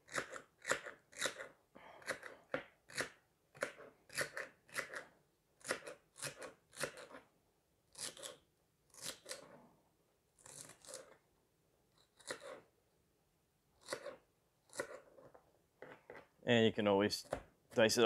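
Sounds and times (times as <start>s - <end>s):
knife cutting celery: 0.0s - 7.3s, 7.9s - 9.6s, 10.4s - 11.2s, 11.9s - 12.7s, 13.8s - 16.3s.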